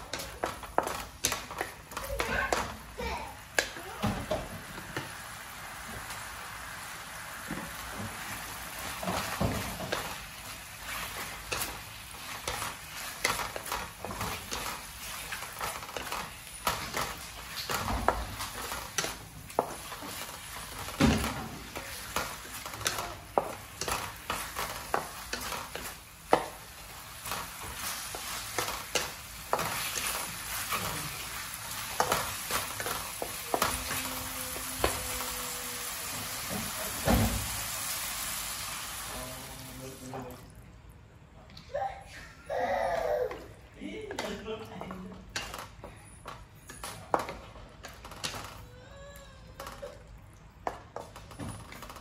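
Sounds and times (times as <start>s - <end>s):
sauce bubbling and sizzling in pan: 0.0s - 41.3s.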